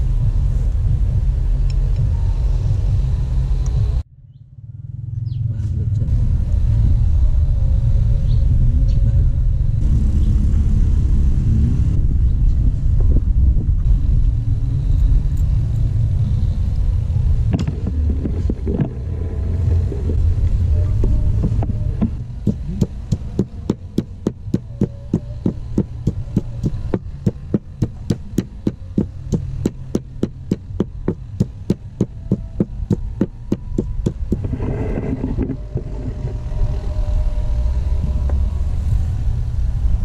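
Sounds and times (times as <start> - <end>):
low rumble: 0.0 - 40.0
wooden pestle pounding in mortar: 21.4 - 34.5.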